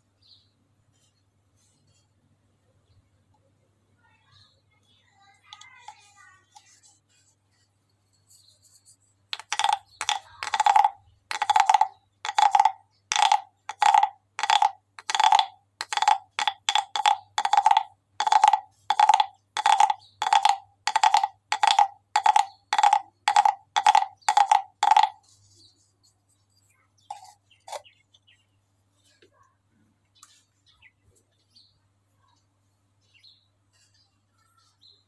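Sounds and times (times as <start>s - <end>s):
wooden guiro rasping croaks: 9.4s - 25.3s.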